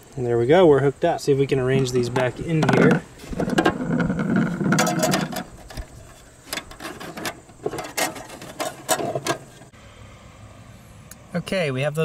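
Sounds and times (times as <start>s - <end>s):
clicks and knocks: 2.2s - 9.7s.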